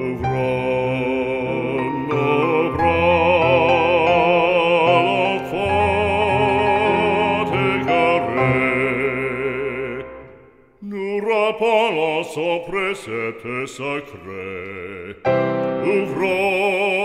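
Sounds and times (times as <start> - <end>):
sustained accompaniment: 0.0 - 10.5
hymn sung with vibrato: 0.0 - 17.0.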